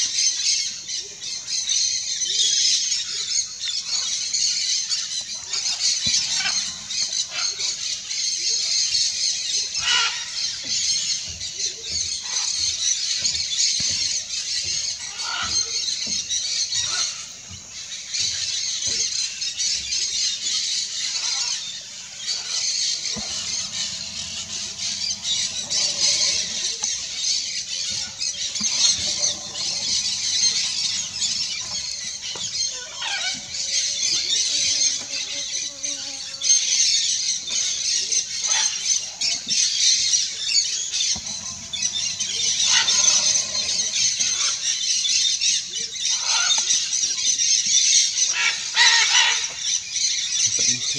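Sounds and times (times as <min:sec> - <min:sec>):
parrots chattering: 0:22.3 - 0:35.1, 0:40.9 - 0:45.0.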